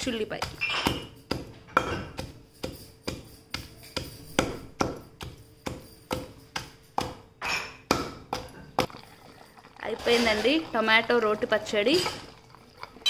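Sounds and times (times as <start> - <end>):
pestle pounding in stone mortar: 0.0 - 8.9.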